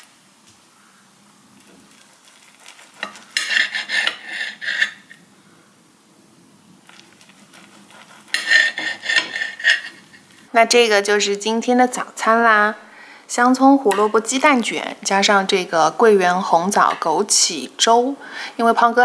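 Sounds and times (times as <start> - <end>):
knife scraping on ceramic plate: 2.6 - 5.2, 7.2 - 10.2.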